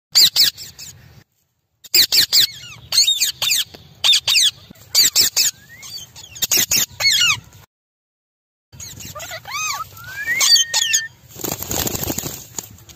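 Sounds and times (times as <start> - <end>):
parakeets calling shrilly: 0.2 - 1.0, 1.8 - 7.4, 8.8 - 12.2.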